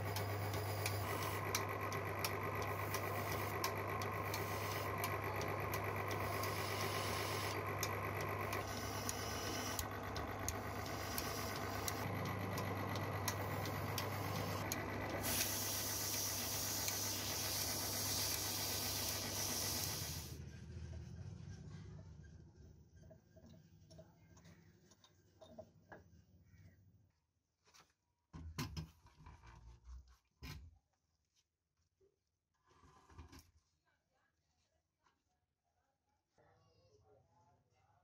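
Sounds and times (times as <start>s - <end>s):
machine motor humming: 0.0s - 20.4s
hiss: 15.2s - 20.3s.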